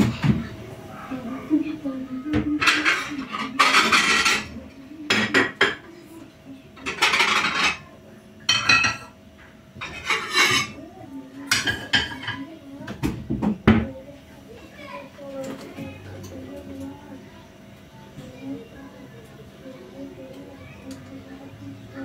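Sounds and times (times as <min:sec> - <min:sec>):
pans clattering and scraping: 0:02.4 - 0:05.9, 0:06.8 - 0:07.9, 0:09.8 - 0:10.8, 0:11.4 - 0:13.6.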